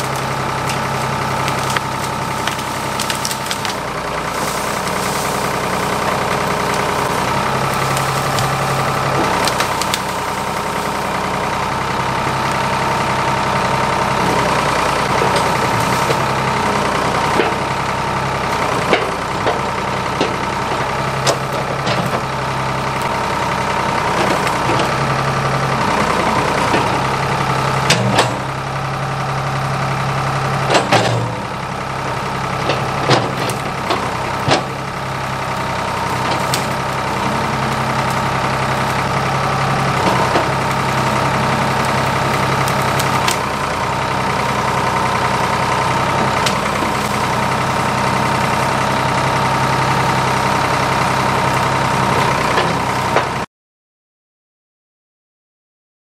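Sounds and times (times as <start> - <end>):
wood knocking and snapping: 0.0 - 11.0
backhoe engine running: 0.0 - 53.5.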